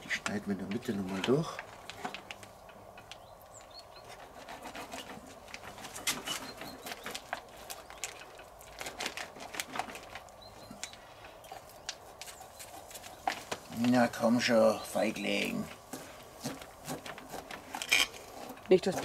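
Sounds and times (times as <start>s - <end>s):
plastic packaging crackling: 0.0s - 3.2s, 5.4s - 12.4s
knife sawing through ribs: 4.2s - 5.5s, 16.0s - 19.0s
faint bird chirps: 10.4s - 12.7s.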